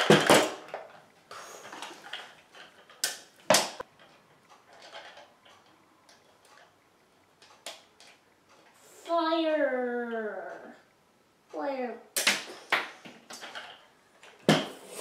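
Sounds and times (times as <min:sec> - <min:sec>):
plastic toy clicks and knocks: 0:01.8 - 0:06.7, 0:07.4 - 0:08.2, 0:12.2 - 0:14.6.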